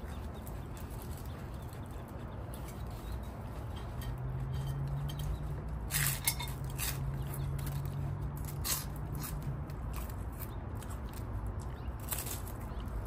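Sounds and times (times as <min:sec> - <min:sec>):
crunchy chewing: 0:00.0 - 0:13.0
utensils clinking on dishes: 0:02.6 - 0:08.0.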